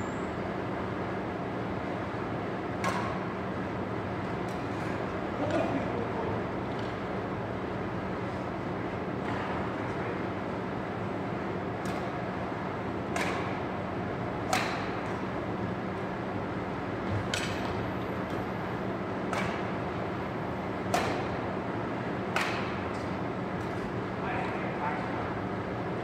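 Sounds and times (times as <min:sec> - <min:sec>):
steady background hum: 0:00.0 - 0:26.0
racket hitting shuttlecock: 0:02.8 - 0:03.3, 0:11.8 - 0:12.2, 0:13.1 - 0:13.6, 0:14.4 - 0:15.3, 0:17.1 - 0:17.8, 0:19.2 - 0:19.8, 0:20.8 - 0:21.4, 0:22.3 - 0:23.8.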